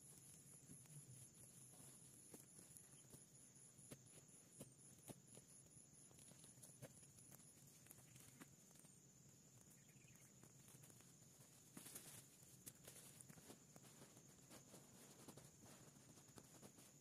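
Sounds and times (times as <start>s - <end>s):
footsteps on brushy ground: 0.0s - 17.0s
rustling of brush: 10.5s - 17.0s.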